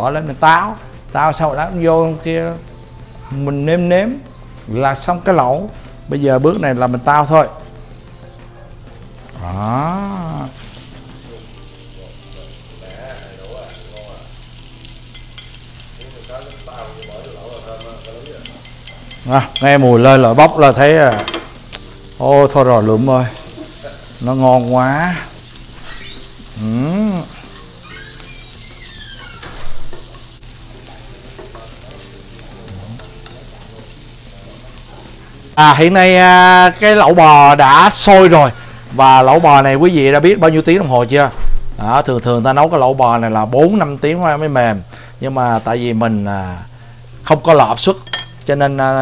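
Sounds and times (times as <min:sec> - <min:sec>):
food sizzling in hot oil: 0:00.2 - 0:40.9
chopsticks stirring: 0:08.7 - 0:28.9, 0:29.9 - 0:35.6.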